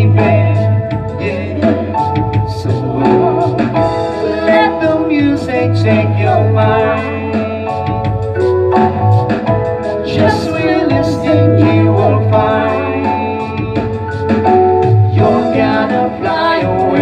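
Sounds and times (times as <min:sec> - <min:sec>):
electronic keyboard chords: 0:00.0 - 0:17.0
steady beat: 0:00.0 - 0:17.0
woman singing into a microphone: 0:01.2 - 0:05.4, 0:10.1 - 0:12.7, 0:15.2 - 0:17.0.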